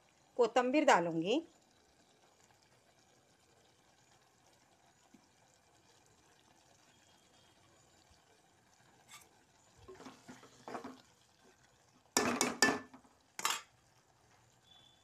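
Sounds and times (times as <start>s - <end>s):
spoon stirring thick curry in a pot: 8.8s - 12.8s
spoon clanking against a pot: 12.2s - 13.7s.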